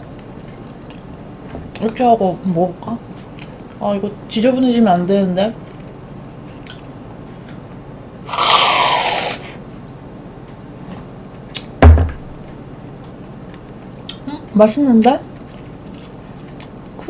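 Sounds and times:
aerosol can hiss: 0:08.3 - 0:09.5
heavy thump: 0:11.8 - 0:12.4.

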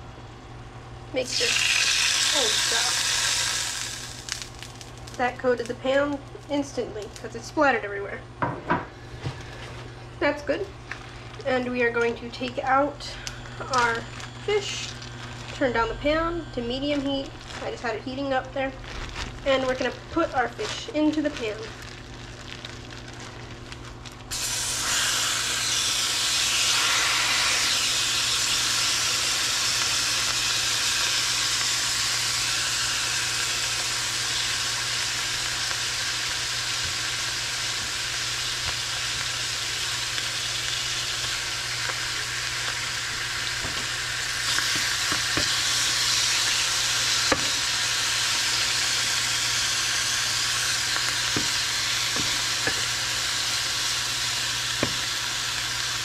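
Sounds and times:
fish sizzling in a pan: 0:01.2 - 0:07.3, 0:18.9 - 0:56.0.

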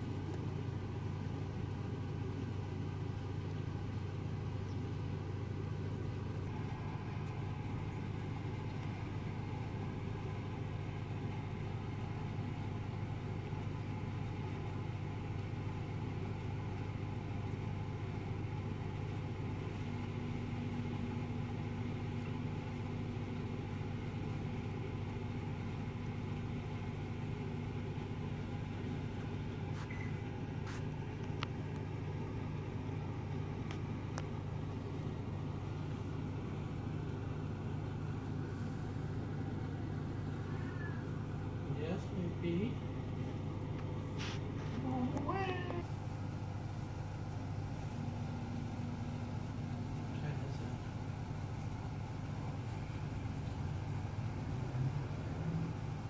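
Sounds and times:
low mechanical hum: 0:00.0 - 0:56.0
faint higher tone: 0:40.4 - 0:41.2.

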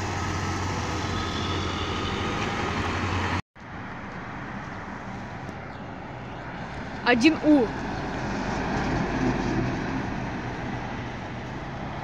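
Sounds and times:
bus engine droning: 0:00.0 - 0:03.4
road noise: 0:00.0 - 0:12.0
street traffic noise: 0:00.0 - 0:12.0.

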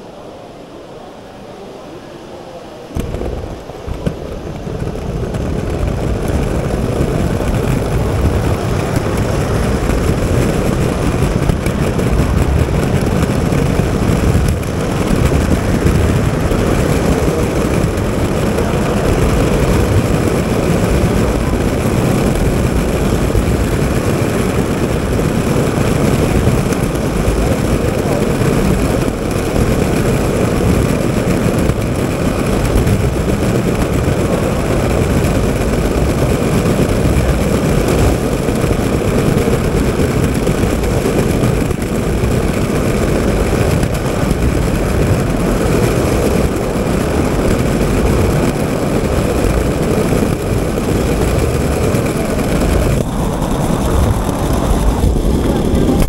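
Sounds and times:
model train wheels rumbling on rails: 0:00.0 - 0:56.0.

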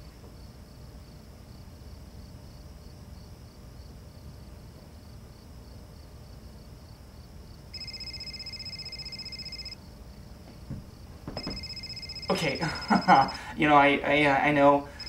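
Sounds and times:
cell phone ringing: 0:07.8 - 0:09.8, 0:11.4 - 0:13.6.

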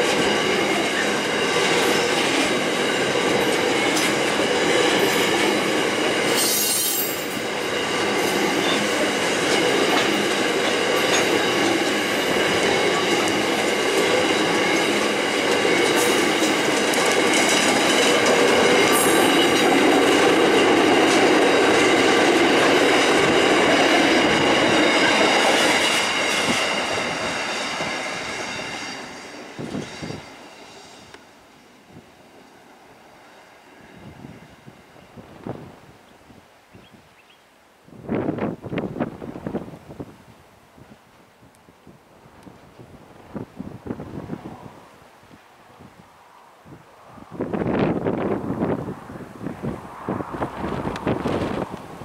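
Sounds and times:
steel wheels clattering over rail joints: 0:00.0 - 0:31.2
high wheel squeal: 0:05.1 - 0:10.3.

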